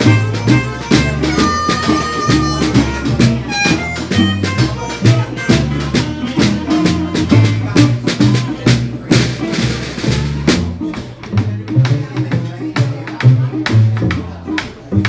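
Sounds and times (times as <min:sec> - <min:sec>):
harmonica notes: 0:00.0 - 0:08.0
acoustic guitar: 0:00.0 - 0:15.0
large drum beat: 0:00.0 - 0:15.0
upright bass: 0:00.0 - 0:15.0.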